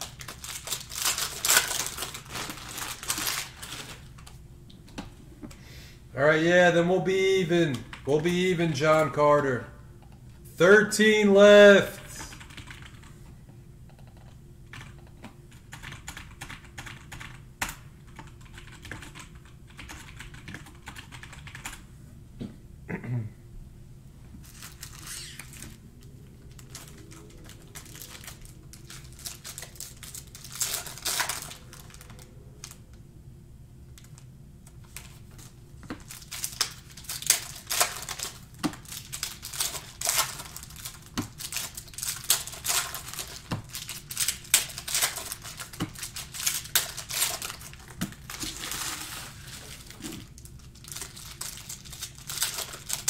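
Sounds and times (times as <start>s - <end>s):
foil wrappers crinkling and tearing: 0.0s - 4.3s, 24.4s - 25.8s, 26.5s - 32.8s, 34.8s - 53.0s.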